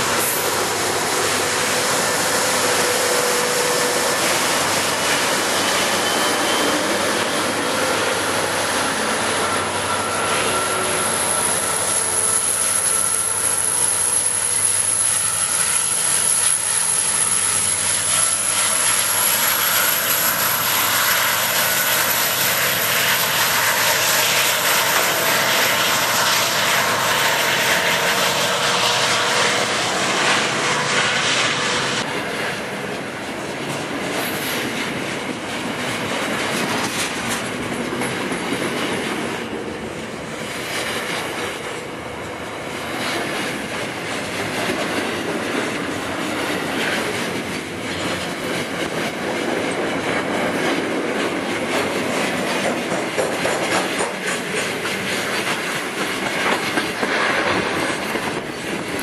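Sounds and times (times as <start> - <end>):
train wheels on rails: 0.0 - 59.0
faint wheel squeal: 5.2 - 8.2, 9.0 - 18.6.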